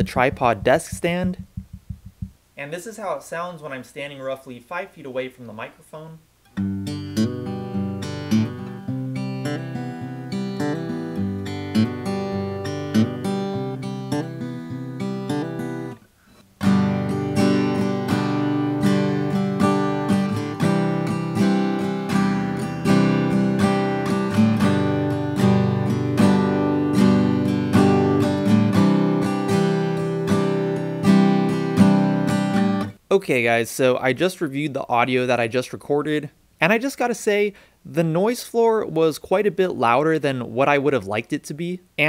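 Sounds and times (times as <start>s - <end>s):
acoustic guitar playing: 0.0s - 2.4s, 6.5s - 33.0s.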